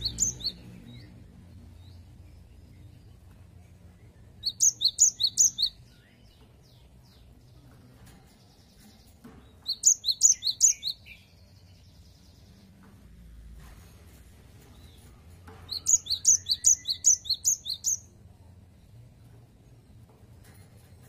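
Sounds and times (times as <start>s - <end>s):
bird singing high and low notes: 0.0s - 3.0s, 4.4s - 7.3s, 8.5s - 12.7s, 15.7s - 18.1s.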